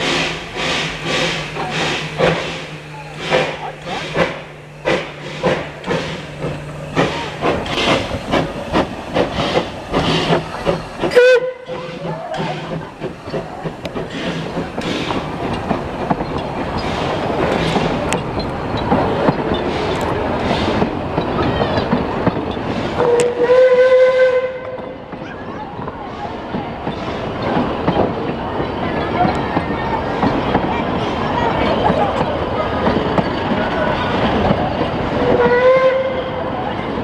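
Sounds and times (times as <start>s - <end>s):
steam locomotive exhaust beats: 0.0s - 37.0s
wheels clattering on rail: 0.0s - 37.0s
steam whistle: 11.1s - 12.0s, 23.0s - 24.8s, 35.2s - 36.4s.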